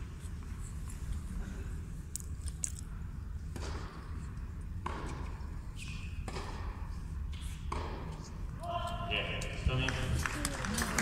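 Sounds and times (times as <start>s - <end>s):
racket striking tennis ball: 3.5s - 4.1s, 4.8s - 8.2s.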